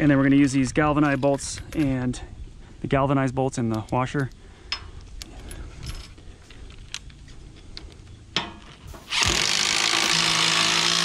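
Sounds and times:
bolt handling clicks: 0.4 - 2.0, 3.6 - 8.5
cordless drill whirring: 9.1 - 11.0.

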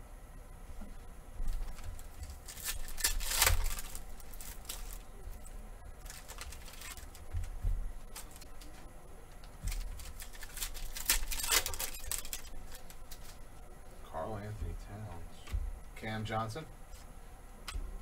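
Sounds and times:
cards shuffling: 1.4 - 5.1, 6.0 - 8.8, 9.4 - 13.4
plastic wrapper crinkling: 1.4 - 8.7, 9.4 - 13.4.

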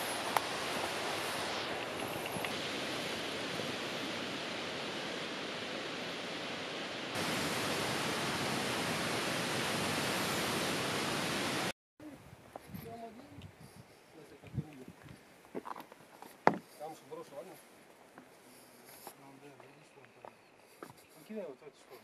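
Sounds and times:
running water rushing: 0.0 - 11.7.

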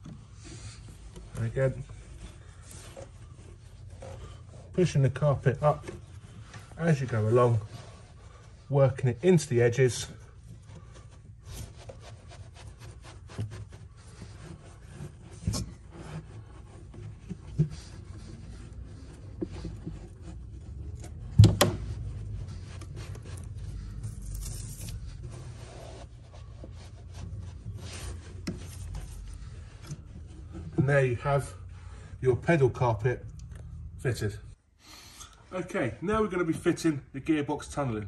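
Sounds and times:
knocks and thump: 21.2 - 21.9.

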